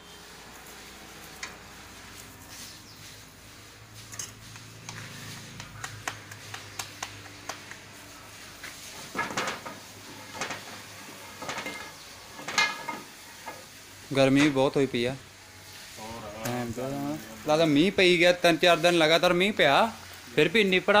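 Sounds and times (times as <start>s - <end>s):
steel utensils clinking: 4.0s - 4.6s, 9.0s - 13.7s.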